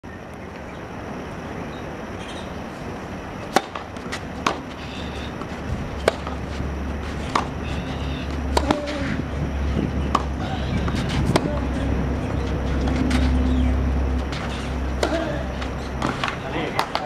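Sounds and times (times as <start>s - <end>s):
tennis ball bounces: 3.4s - 17.0s
tennis racket strikes: 3.5s - 4.7s, 5.4s - 7.5s, 8.5s - 9.1s, 10.1s - 11.9s, 14.3s - 17.0s.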